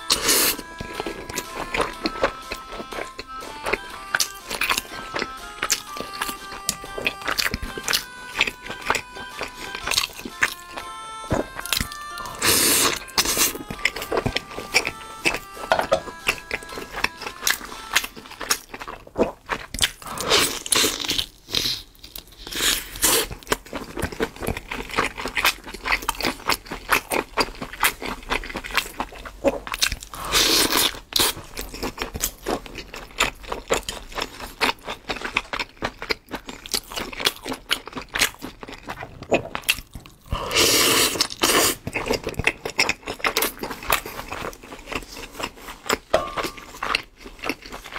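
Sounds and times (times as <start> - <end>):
chewing with mouth smacks: 0.0 - 47.9.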